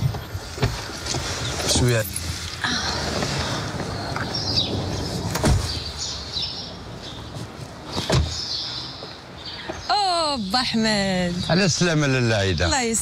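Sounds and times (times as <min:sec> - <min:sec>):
birds chirping: 0:00.0 - 0:13.0
car doors slamming: 0:03.0 - 0:06.0, 0:07.9 - 0:08.6.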